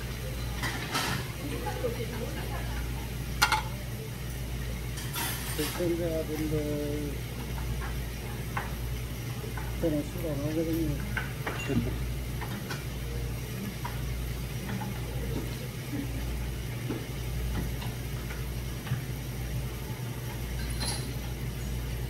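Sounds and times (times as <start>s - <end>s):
low mechanical hum: 0.0s - 22.0s
meat sizzling on grill: 0.0s - 22.0s
tongs and tableware clicking: 20.2s - 21.4s.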